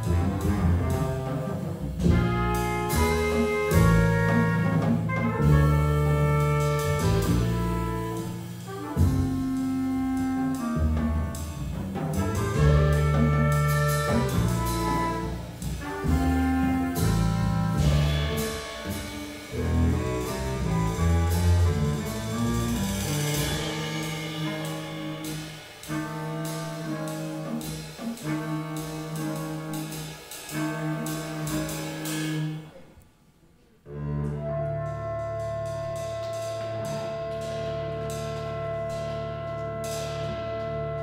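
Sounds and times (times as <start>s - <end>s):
upright bass: 0.0s - 23.7s
drums with cymbals: 0.0s - 32.8s, 35.0s - 41.0s
trumpet: 0.0s - 33.0s, 33.9s - 41.0s.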